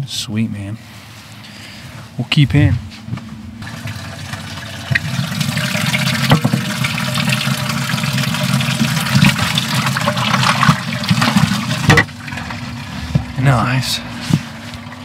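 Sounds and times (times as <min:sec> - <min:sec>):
outboard motor running: 0:03.6 - 0:15.0.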